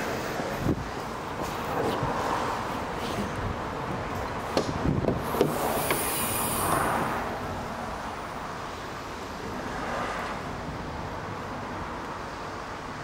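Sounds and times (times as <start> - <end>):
brief high hiss: 5.5 - 7.0.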